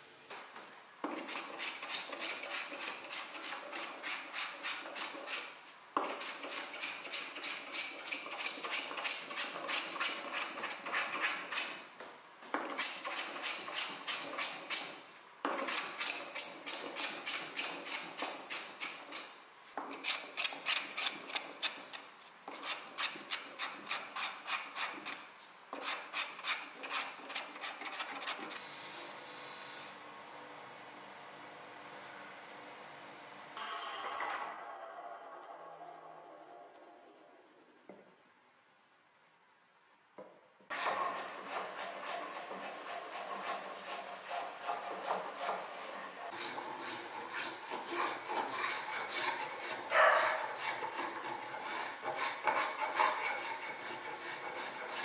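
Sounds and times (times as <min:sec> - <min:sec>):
hand tool scraping wood: 0:01.0 - 0:11.9, 0:12.5 - 0:28.6, 0:40.7 - 0:55.0.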